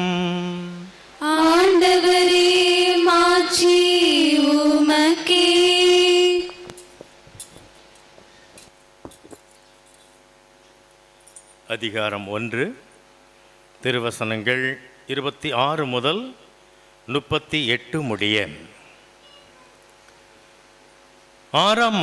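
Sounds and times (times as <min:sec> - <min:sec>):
woman chanting: 0:00.0 - 0:06.7.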